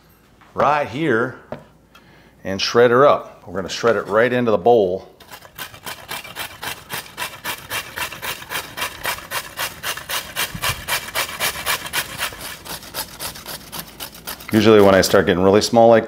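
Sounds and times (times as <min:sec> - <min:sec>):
carrot rasping on a hand grater: 0:05.2 - 0:15.4.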